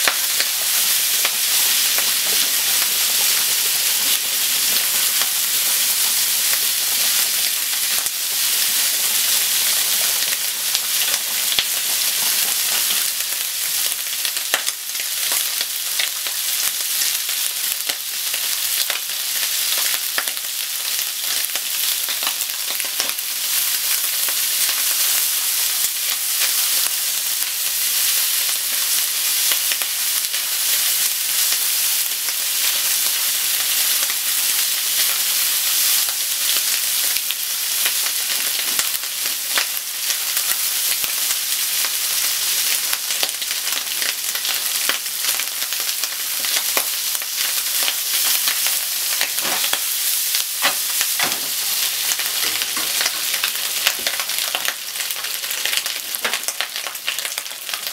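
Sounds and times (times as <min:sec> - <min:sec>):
bacon sizzling in frying pan: 0:00.0 - 0:57.9
chopsticks scraping pan: 0:49.4 - 0:49.8, 0:50.6 - 0:53.4.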